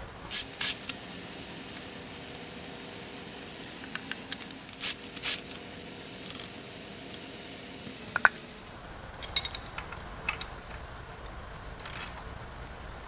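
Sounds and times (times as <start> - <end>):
metal clinks and knocks: 9.2 - 10.8.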